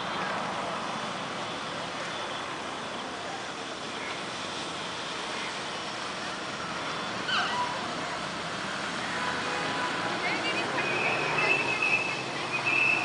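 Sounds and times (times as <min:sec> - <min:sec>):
outdoor background noise: 0:00.0 - 0:13.0
brief high squeak: 0:07.3 - 0:07.8.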